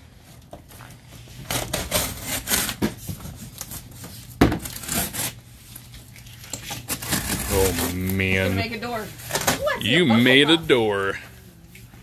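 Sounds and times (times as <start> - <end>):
plastic wrap crackling and rustling: 0.1 - 11.2.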